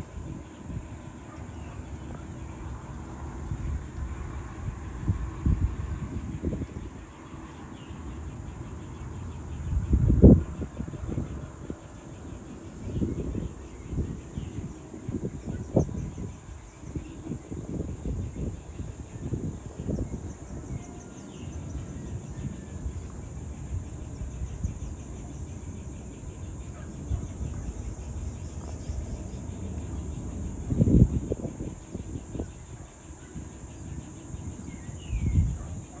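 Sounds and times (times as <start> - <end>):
high-pitched insect chorus: 0.0 - 36.0
wind gusting on microphone: 0.0 - 36.0.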